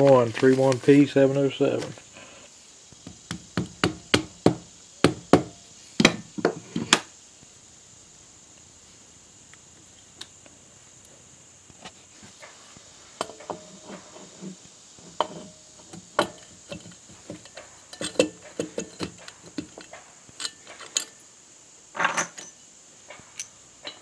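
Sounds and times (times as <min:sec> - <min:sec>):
metal clinks and knocks: 0:13.2 - 0:21.2, 0:22.0 - 0:24.0.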